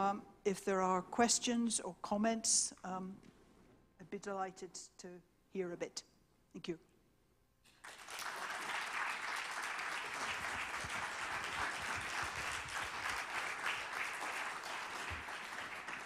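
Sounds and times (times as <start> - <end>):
audience applause: 7.8 - 16.0.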